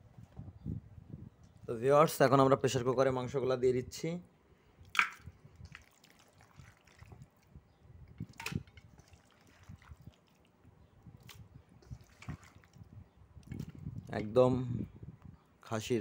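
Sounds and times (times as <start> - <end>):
wet plops and squelches: 4.8 - 7.5, 8.2 - 14.1.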